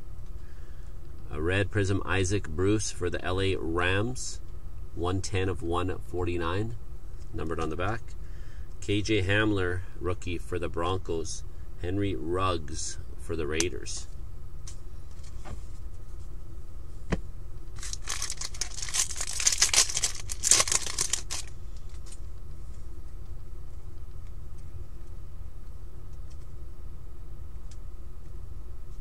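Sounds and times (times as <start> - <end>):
foil pack tearing and crinkling: 17.8 - 22.2.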